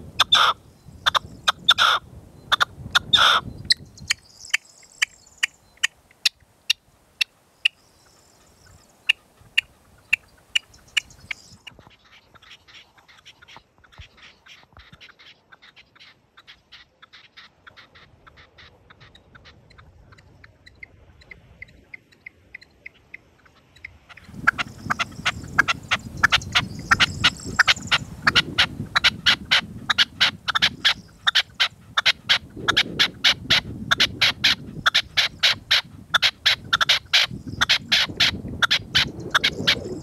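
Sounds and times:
wind rumble on microphone: 0:00.0 - 0:05.9, 0:08.5 - 0:12.4, 0:23.8 - 0:40.0.

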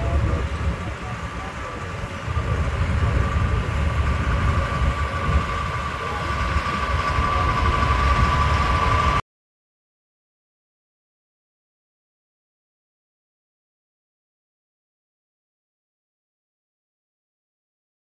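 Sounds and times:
heavy vehicle engine passing: 0:00.0 - 0:09.2.

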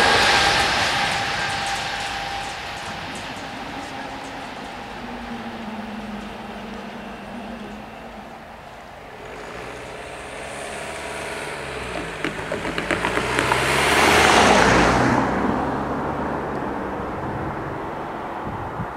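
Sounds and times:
car passing by: 0:00.0 - 0:18.9.

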